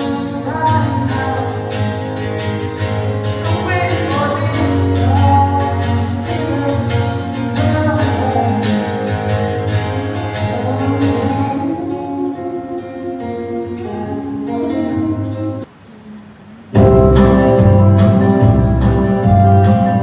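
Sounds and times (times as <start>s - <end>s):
person singing into a microphone: 0.0s - 16.3s
acoustic guitar: 0.0s - 20.0s
loud music with heavy bass: 16.8s - 20.0s.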